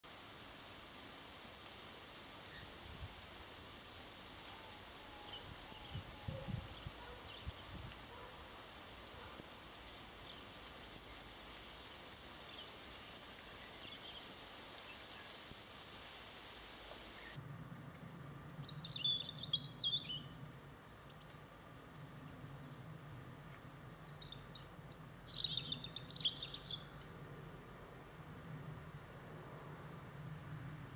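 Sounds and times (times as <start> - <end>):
robin ticking calls: 1.5 - 2.6, 3.5 - 4.3, 5.2 - 8.6, 9.3 - 9.7, 10.3 - 11.5, 12.1 - 14.2, 15.2 - 16.0, 24.2 - 27.0.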